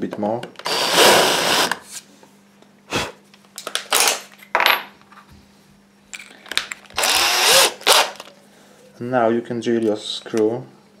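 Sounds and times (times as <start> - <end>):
cordless drill cutting into wood: 0.6 - 1.8, 7.0 - 8.2.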